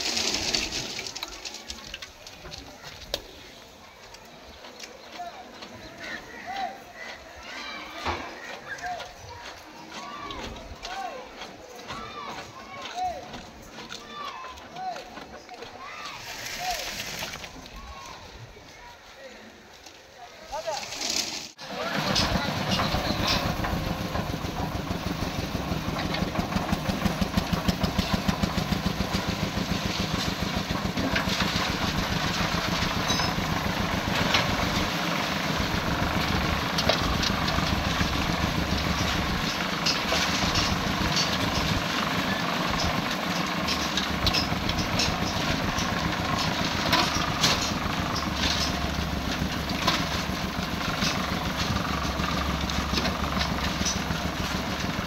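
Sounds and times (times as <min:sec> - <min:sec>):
concrete mixer engine running: 0:00.0 - 0:15.8, 0:20.6 - 0:55.0
metal pans and shovels clanking: 0:20.6 - 0:24.6, 0:25.8 - 0:55.0.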